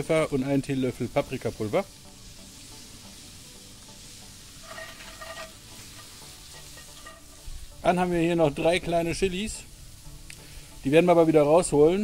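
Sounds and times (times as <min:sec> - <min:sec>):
vegetables sizzling in a pan: 0:00.0 - 0:12.0
wooden spoon scraping a pan: 0:04.5 - 0:07.7.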